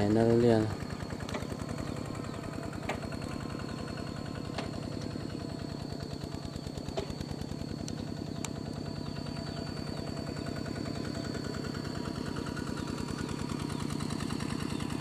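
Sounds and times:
small engine idling: 0:00.0 - 0:15.0
light clicks: 0:07.8 - 0:08.6.

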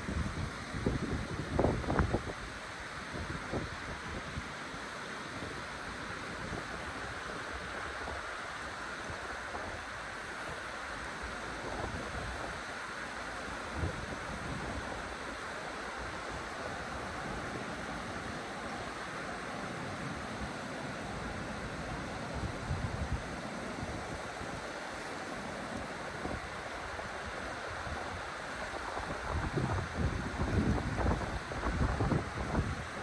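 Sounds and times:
wind buffeting microphone: 0:00.0 - 0:04.4, 0:21.5 - 0:24.9, 0:25.8 - 0:33.0
river water flowing: 0:00.0 - 0:33.0.

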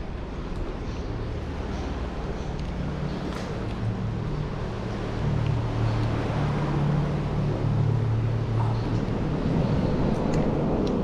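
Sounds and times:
constant rushing noise: 0:00.0 - 0:11.0.

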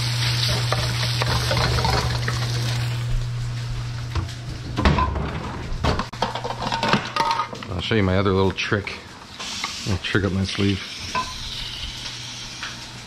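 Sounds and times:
chicken sizzling in oil: 0:00.0 - 0:03.1, 0:09.4 - 0:13.0.

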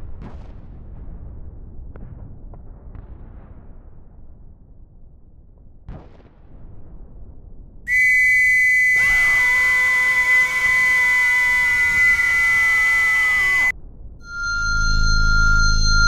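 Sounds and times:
man screaming: 0:07.9 - 0:13.7
piercing high whistle tone: 0:07.9 - 0:16.0.

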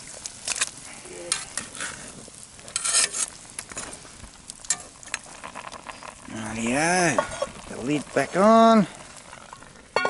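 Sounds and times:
faint sizzle: 0:00.0 - 0:10.0
metal tongs scraping pot: 0:02.6 - 0:03.9.

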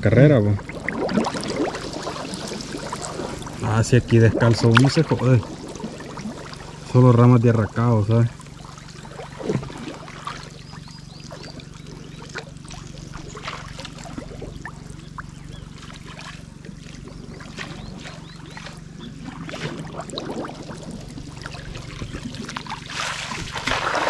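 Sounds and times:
low steady hum: 0:00.0 - 0:24.0
water sloshing and splashing: 0:00.0 - 0:24.0.

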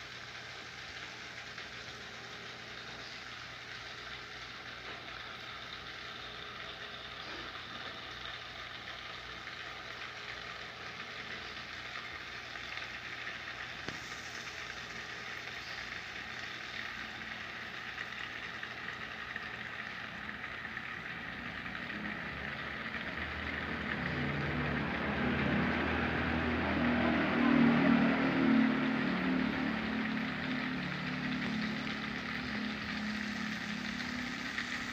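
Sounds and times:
water trickling into pond: 0:00.0 - 0:34.9.

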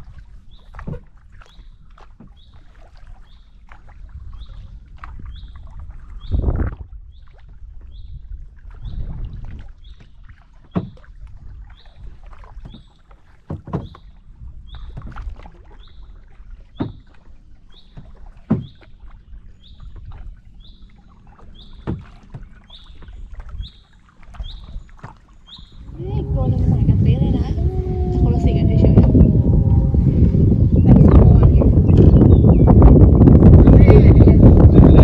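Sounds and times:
paddle strokes splashing: 0:00.0 - 0:33.7
rumble of moving water: 0:00.0 - 0:35.0
wind on microphone: 0:03.9 - 0:09.9, 0:25.6 - 0:35.0.

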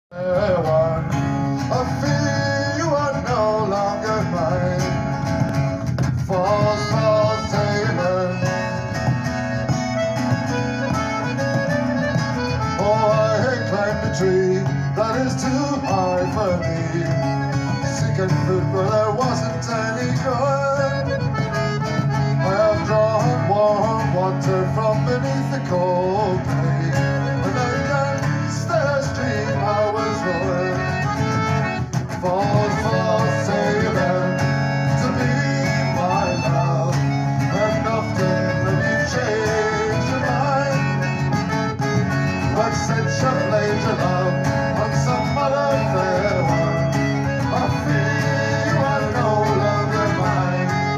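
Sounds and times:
accordion melody: 0:00.1 - 0:50.9
strummed acoustic guitar: 0:00.1 - 0:50.9
frame drum: 0:04.9 - 0:13.0.

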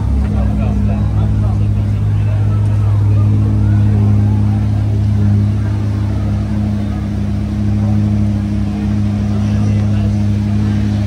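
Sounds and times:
engine idling: 0:00.0 - 0:11.0
faint voices: 0:00.0 - 0:11.0.

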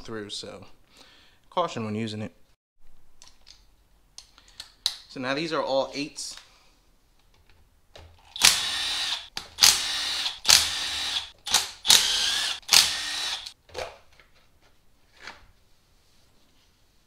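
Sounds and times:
power tool spinning in short bursts: 0:08.4 - 0:13.5.

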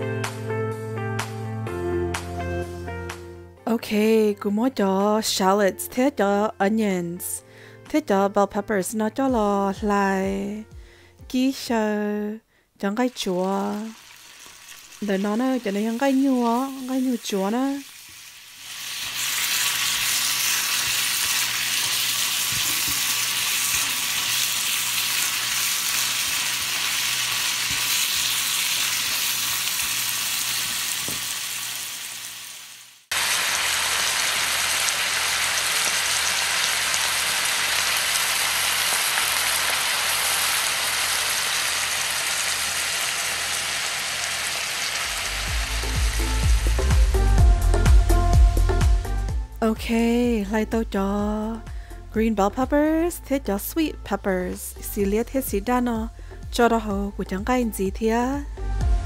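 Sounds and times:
food sizzling in hot oil: 0:13.0 - 0:47.2.

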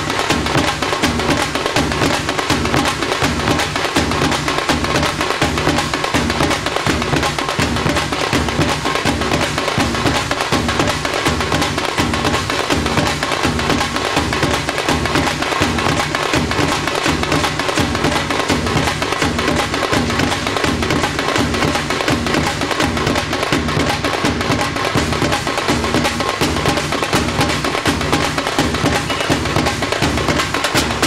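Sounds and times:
folk drum ensemble playing: 0:00.0 - 0:31.0.

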